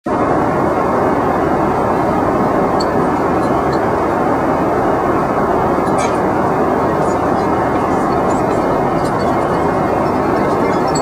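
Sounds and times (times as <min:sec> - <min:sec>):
jet engines droning: 0:00.0 - 0:11.0
rushing air: 0:00.1 - 0:11.0
faint clinks: 0:05.8 - 0:11.0.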